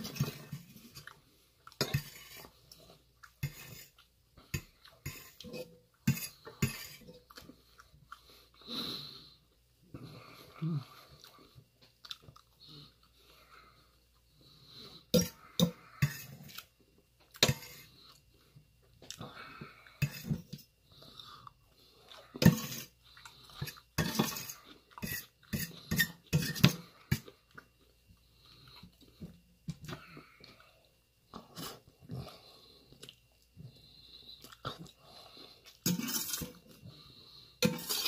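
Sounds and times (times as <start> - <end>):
person chewing food: 0.0 - 38.0.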